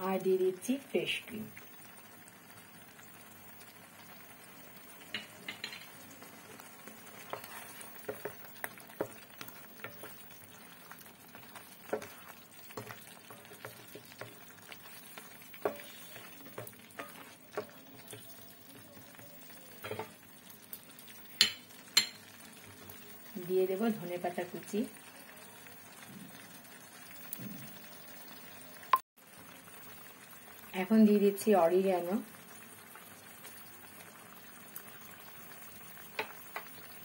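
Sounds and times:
faint simmering: 0.0s - 37.0s
spatula scraping and tapping pan: 5.0s - 18.4s, 19.8s - 20.2s, 21.3s - 22.4s, 36.1s - 36.9s.

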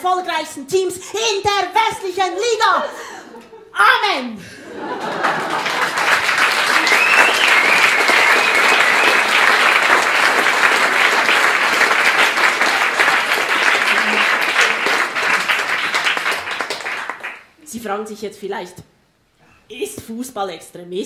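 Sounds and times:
audience applauding: 4.9s - 17.5s
wavering whistle: 6.8s - 9.7s.

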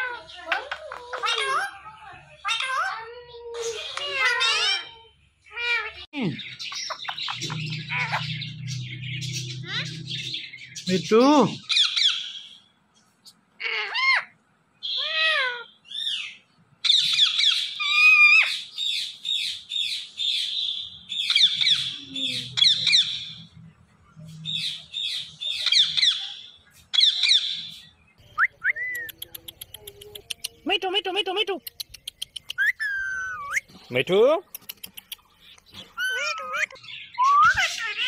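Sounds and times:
parakeet calling: 3.7s - 12.6s, 27.0s - 33.8s, 34.5s - 38.0s.

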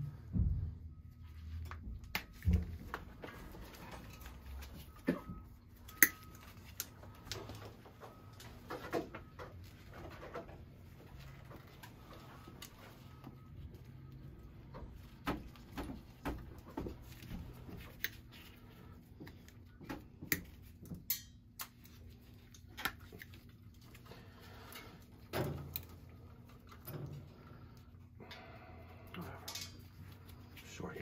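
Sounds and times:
pliers clicking and snipping wire: 5.9s - 6.9s, 20.2s - 21.8s.

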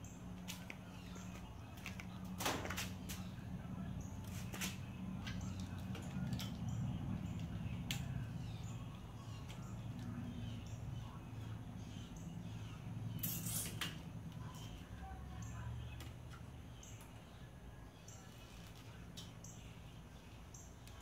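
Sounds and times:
steady low hum: 0.0s - 21.0s
clicks and rustles of wires and plastic: 0.4s - 3.3s, 4.2s - 8.1s.

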